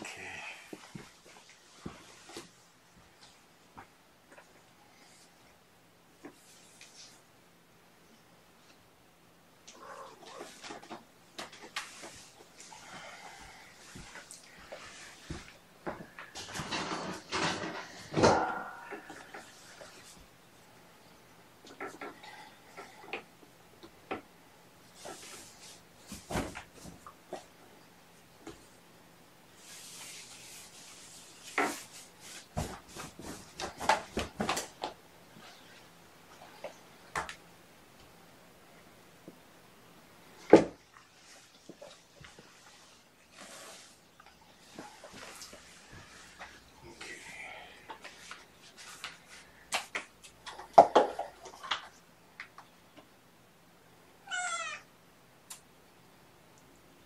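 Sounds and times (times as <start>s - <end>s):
cat meowing: 9.7s - 10.4s, 54.2s - 54.9s.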